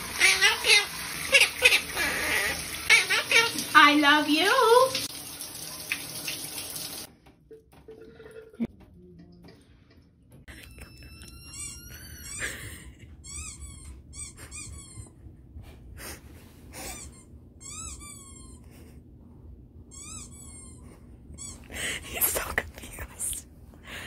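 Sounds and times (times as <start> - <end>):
dog whining: 0.2 - 3.6, 10.9 - 15.2, 16.7 - 19.0, 19.9 - 21.7.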